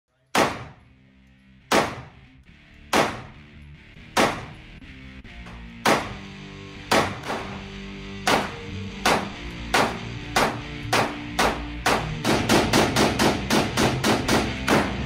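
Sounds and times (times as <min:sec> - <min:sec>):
faint music: 0:00.1 - 0:15.0
pistol shots echoing: 0:00.3 - 0:00.9, 0:01.7 - 0:02.3, 0:02.9 - 0:03.4, 0:04.2 - 0:04.7, 0:05.6 - 0:07.7, 0:08.3 - 0:15.0.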